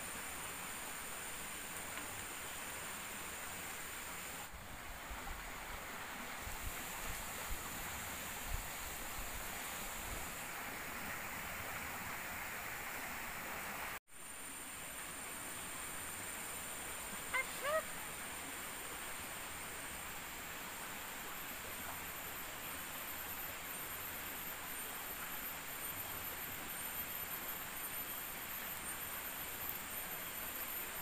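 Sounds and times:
steady rushing hiss: 0.0s - 31.0s
high insect drones: 5.3s - 31.0s
bird honking calls: 17.3s - 17.8s.

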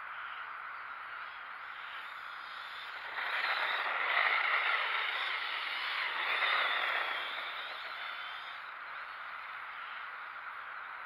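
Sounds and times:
toy car electric motor: 1.2s - 10.3s
tyres on snow: 1.6s - 9.2s.

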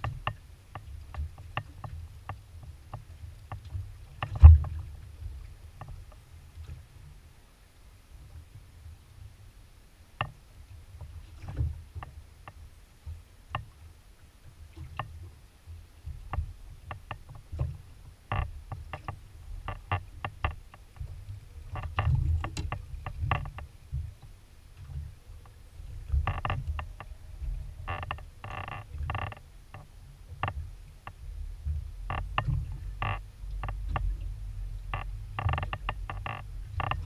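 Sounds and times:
waves slapping against boat hull: 0.0s - 7.2s, 10.1s - 13.9s, 14.5s - 37.0s
steady low rumble: 17.8s - 37.0s.

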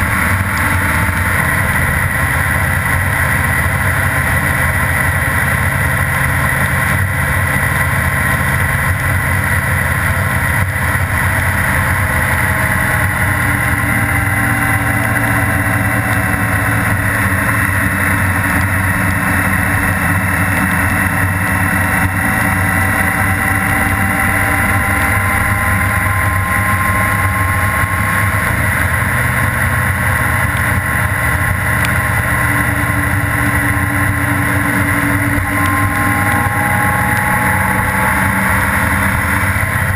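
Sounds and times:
motorcycle engine cruising: 0.0s - 39.9s.

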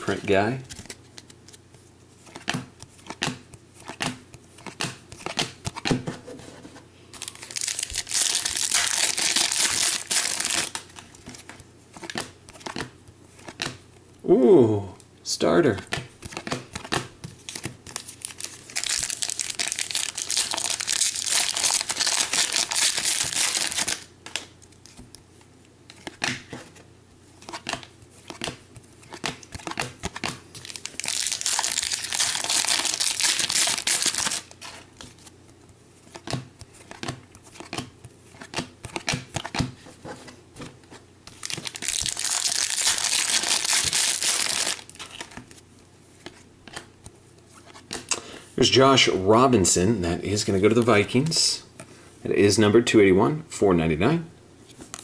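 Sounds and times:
foil wrappers crinkling: 7.2s - 11.5s, 17.5s - 24.5s, 29.1s - 35.1s, 41.3s - 45.5s.

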